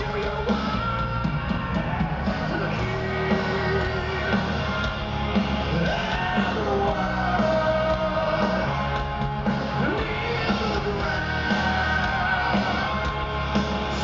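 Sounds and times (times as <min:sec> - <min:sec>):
bass: 0:00.0 - 0:14.0
distorted guitars: 0:00.0 - 0:14.0
drums: 0:00.0 - 0:14.0
person singing: 0:02.3 - 0:04.8, 0:05.6 - 0:09.0, 0:09.7 - 0:13.2.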